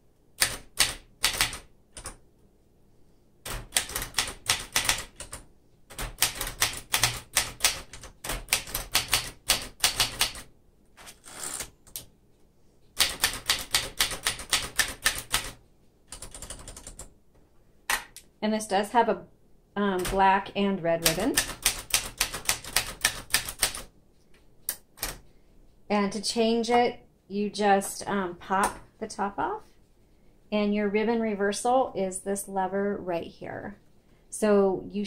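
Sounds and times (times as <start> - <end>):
manual typewriter typing: 0.4 - 2.2, 3.5 - 12.1, 13.0 - 17.1, 19.8 - 20.4, 21.0 - 23.9.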